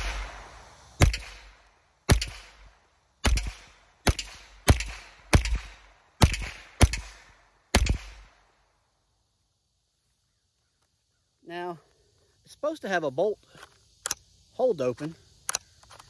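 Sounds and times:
rifle shots: 0.0 - 8.4.

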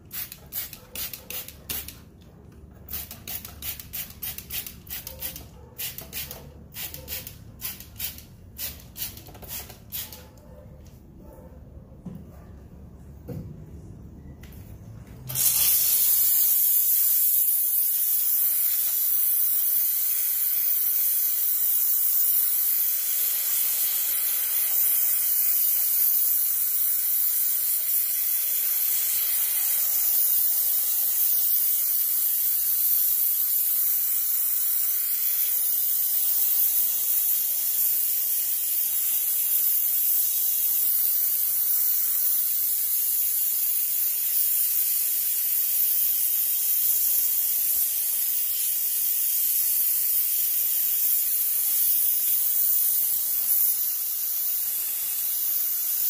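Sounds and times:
steam cleaner hissing: 15.3 - 56.0.

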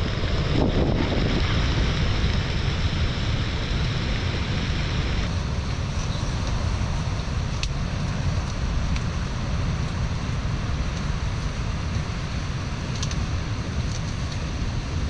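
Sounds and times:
surf rushing: 0.0 - 7.5
wind buffeting microphone: 0.0 - 15.0.

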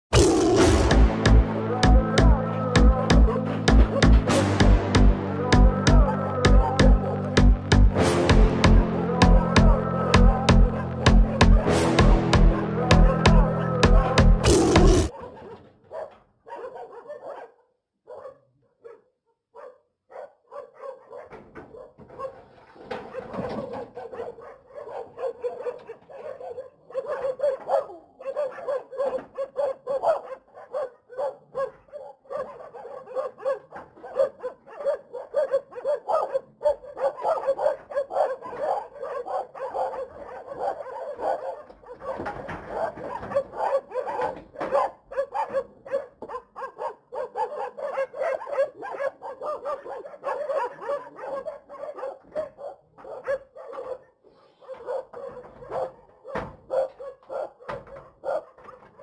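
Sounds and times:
dogs barking: 0.1 - 59.0.

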